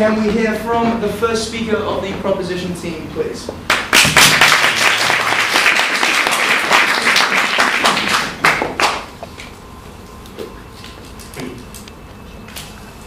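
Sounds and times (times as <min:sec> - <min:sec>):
audience applauding: 0:03.7 - 0:09.1.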